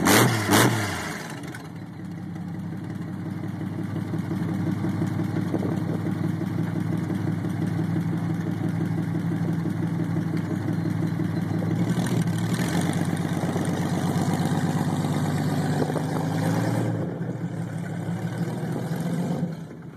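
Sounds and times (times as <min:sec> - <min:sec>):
motorcycle engine idling and revving: 0:00.0 - 0:19.9
motorcycle riding away: 0:10.1 - 0:19.9.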